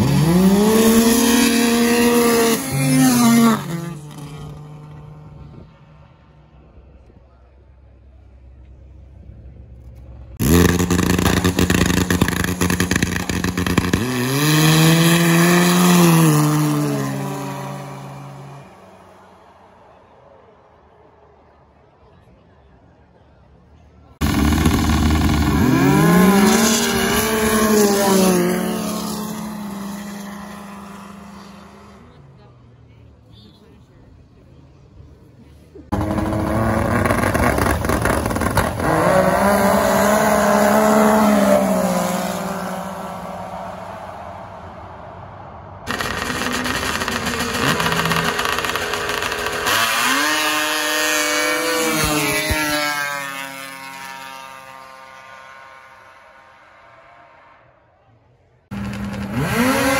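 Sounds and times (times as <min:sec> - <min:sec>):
snowmobile engine at full throttle: 0:00.0 - 0:04.2, 0:10.4 - 0:18.6, 0:24.2 - 0:32.2, 0:35.9 - 0:43.3, 0:45.9 - 0:56.2, 0:58.7 - 0:59.9.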